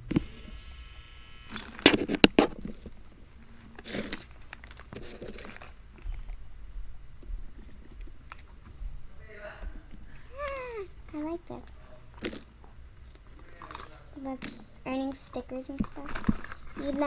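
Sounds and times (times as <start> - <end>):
plastic packet crinkling: 3.6 - 6.4, 15.8 - 17.0.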